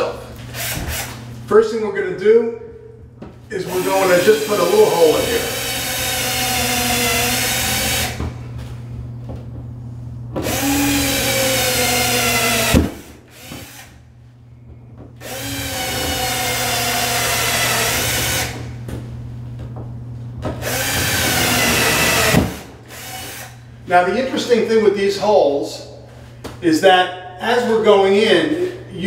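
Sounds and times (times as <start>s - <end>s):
cordless drill whining: 10.4s - 14.0s, 15.2s - 18.7s, 20.6s - 23.6s.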